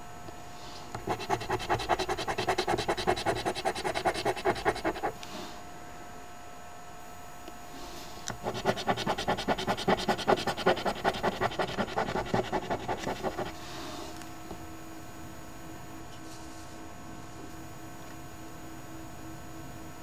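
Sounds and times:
faint steady hum: 0.0s - 20.0s
coin scratching lottery ticket: 1.0s - 5.2s, 8.4s - 13.6s.

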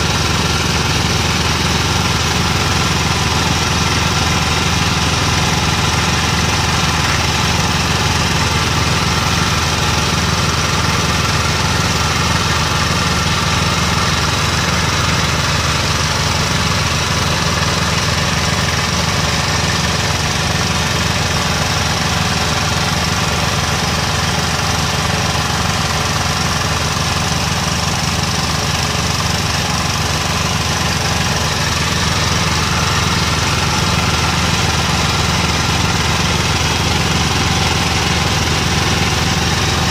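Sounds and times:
drilling rig engine running: 0.0s - 39.9s.

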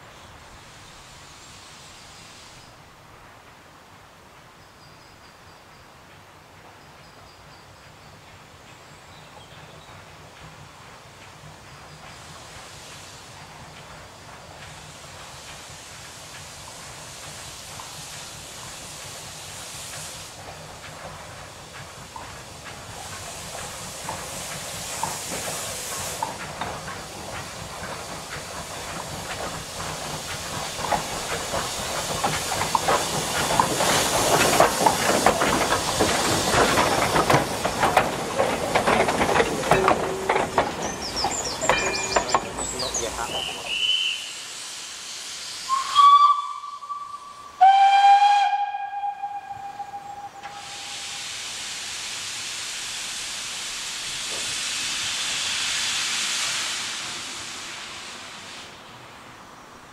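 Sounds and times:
steam locomotive passing: 0.0s - 59.9s
steam whistle blasts: 43.3s - 44.5s, 45.6s - 51.4s.

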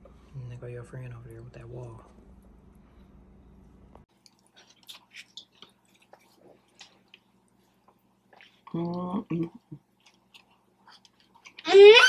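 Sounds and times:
person chewing food: 4.1s - 11.6s.

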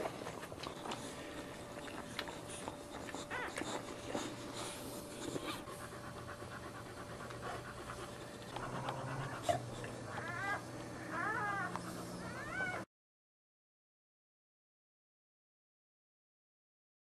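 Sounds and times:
dog panting: 0.0s - 12.8s
puppies squeaking: 0.6s - 5.7s, 8.0s - 12.9s.

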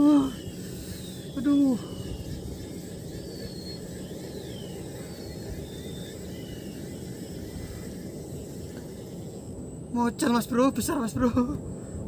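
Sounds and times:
whistled bird calls: 0.0s - 9.3s.

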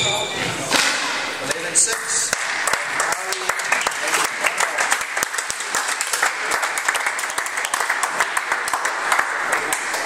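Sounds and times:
crowd applauding: 1.5s - 10.0s.

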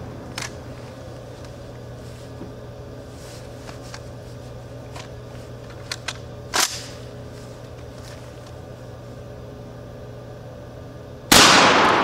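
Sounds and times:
shotgun shot: 11.3s - 12.0s.

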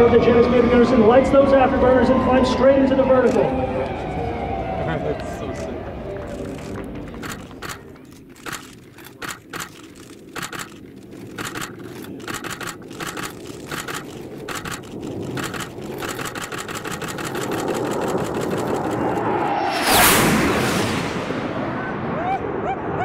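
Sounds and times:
ticking percussion: 6.3s - 19.3s
rising rush of noise: 15.4s - 23.0s.

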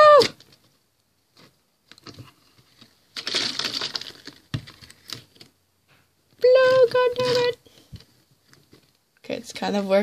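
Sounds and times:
rubber balloon rubbing and crackling: 6.4s - 7.6s.

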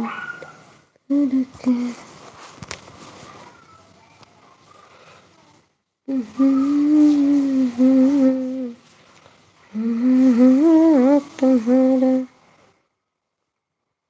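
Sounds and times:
woman humming a tune: 1.1s - 2.0s, 6.1s - 8.8s, 9.8s - 12.4s.

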